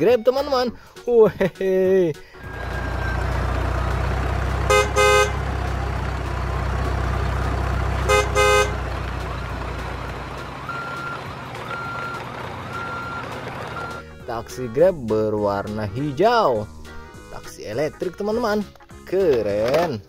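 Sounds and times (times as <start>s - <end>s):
car engine rumbling: 2.4s - 15.0s
car horn honks: 4.6s - 5.6s, 7.9s - 9.0s.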